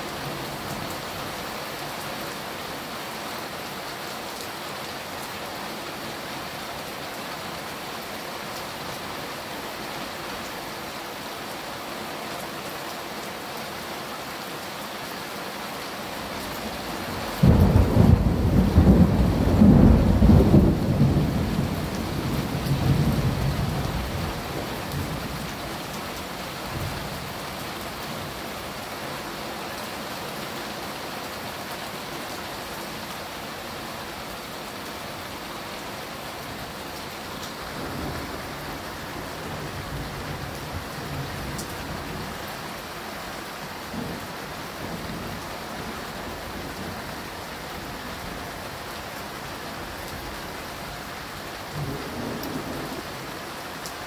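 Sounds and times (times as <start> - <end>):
steady rain falling: 0.0 - 54.0
thunderclap rumbling: 17.4 - 25.1.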